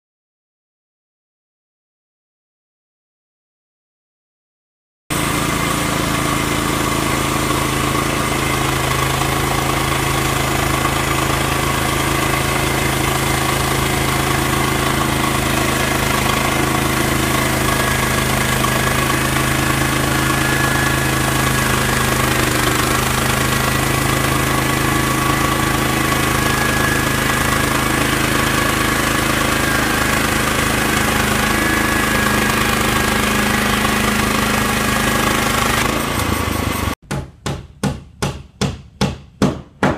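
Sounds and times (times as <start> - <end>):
bandsaw mill running: 5.1 - 37.0.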